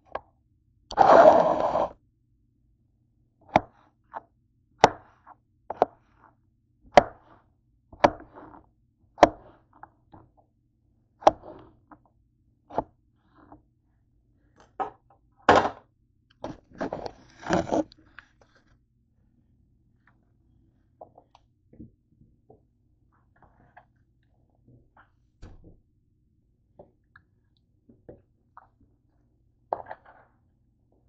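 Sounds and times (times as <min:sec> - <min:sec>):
noisy handling sounds: 0:16.3 - 0:18.8
knife slicing on cutting board: 0:16.8 - 0:17.9.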